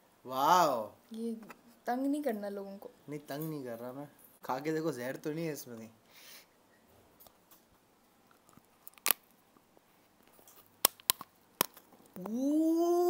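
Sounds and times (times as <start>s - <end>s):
teeth cracking chocolate shell: 8.3s - 9.4s, 10.2s - 12.4s
person humming mmm: 12.2s - 13.0s.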